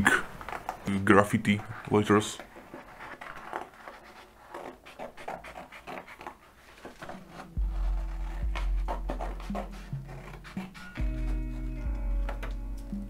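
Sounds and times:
paper rustling and crinkling: 0.0s - 12.5s
low music pad: 7.3s - 13.0s.

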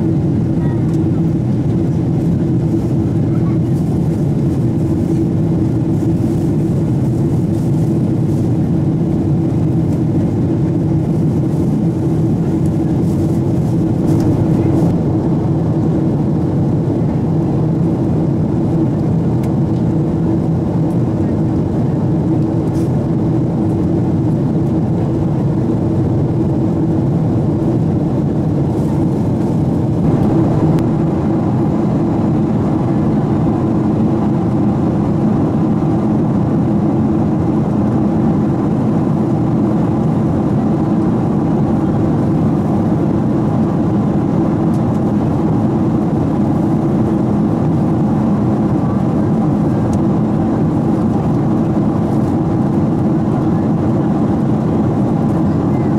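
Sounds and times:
airplane cabin engine rush: 0.0s - 55.9s.

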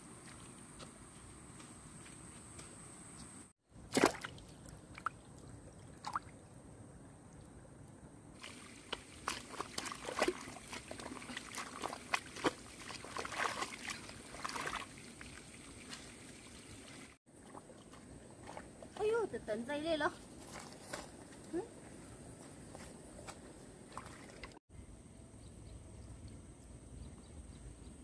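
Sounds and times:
mud squelching: 3.8s - 6.4s, 8.4s - 21.5s, 23.8s - 24.6s
muddy water splashing: 3.8s - 6.5s, 8.4s - 19.7s, 23.8s - 24.6s
water drips: 3.9s - 6.6s, 8.4s - 18.6s.

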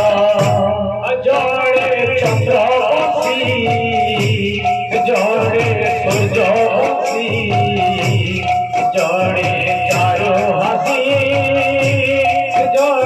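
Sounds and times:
devotional song: 0.0s - 13.0s
steady drum beat: 0.0s - 13.0s
hand cymbals striking: 1.4s - 13.0s.

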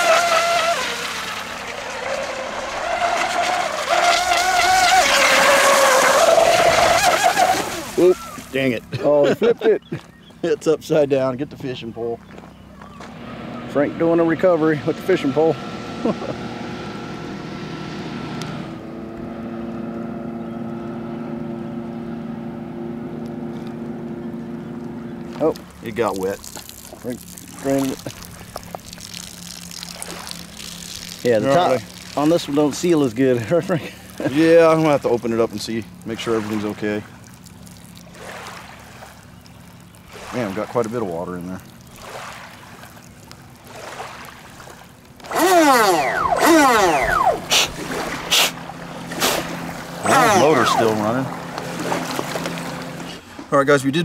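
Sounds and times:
electric motor whining: 0.0s - 8.5s, 45.1s - 53.2s
motor droning whine: 0.0s - 54.0s
short hiss: 48.3s - 49.5s.

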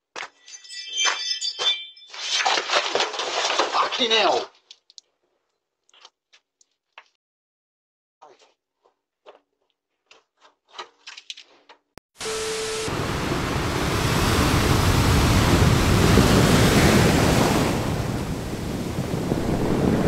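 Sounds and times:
surf crashing: 12.2s - 20.0s
wind buffeting microphone: 12.9s - 20.0s.

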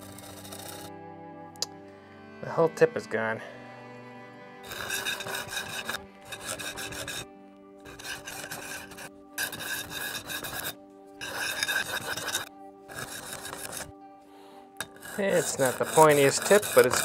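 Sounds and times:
knife rasping on sharpening stone: 0.0s - 0.9s, 4.6s - 7.2s, 7.8s - 13.9s, 14.8s - 17.0s.

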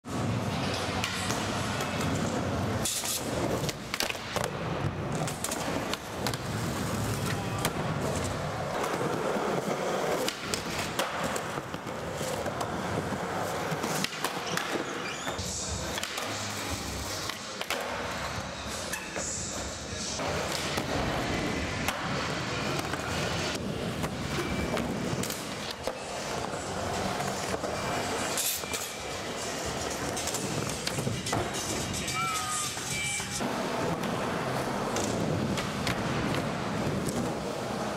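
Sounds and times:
skateboard wheels rolling: 0.1s - 37.9s.

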